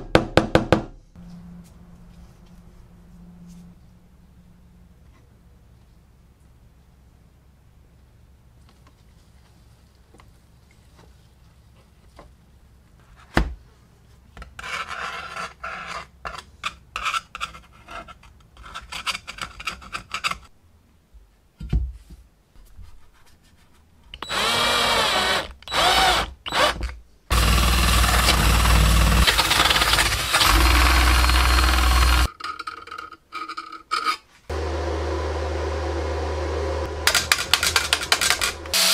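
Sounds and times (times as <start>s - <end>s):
electric drill running: 24.2s - 32.3s, 36.8s - 38.9s.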